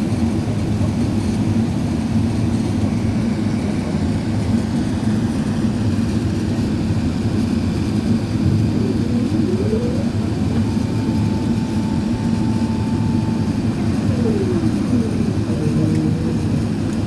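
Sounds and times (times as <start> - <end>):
aircraft cabin engine rumble: 0.0 - 17.0
thin rising whine: 7.9 - 17.0.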